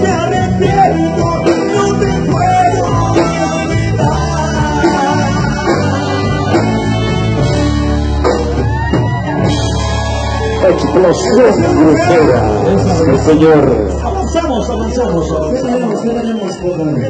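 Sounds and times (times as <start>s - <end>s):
men singing: 0.0s - 7.2s
live band music: 0.0s - 17.0s.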